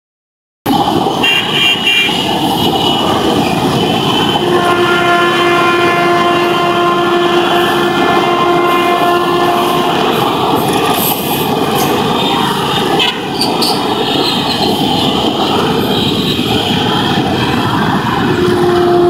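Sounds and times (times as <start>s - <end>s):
train wheels rumbling on rails: 0.7s - 19.0s
train horn: 1.2s - 10.2s, 12.2s - 13.4s, 18.3s - 19.0s.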